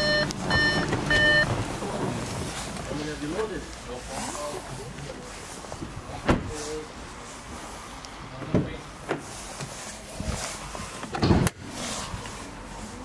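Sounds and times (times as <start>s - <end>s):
car door thuds and clunks: 0.4s - 2.5s.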